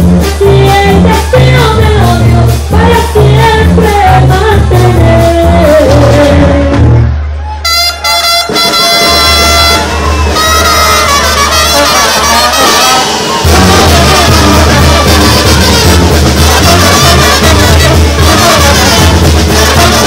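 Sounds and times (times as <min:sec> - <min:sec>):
heavy low bass line: 0:00.0 - 0:07.3, 0:13.4 - 0:20.0
brass band playing: 0:00.0 - 0:20.0.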